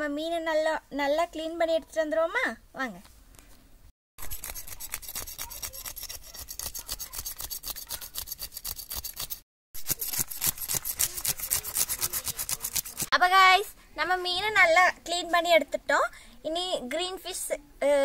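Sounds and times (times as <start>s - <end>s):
knife scraping fish scales: 4.2s - 13.1s.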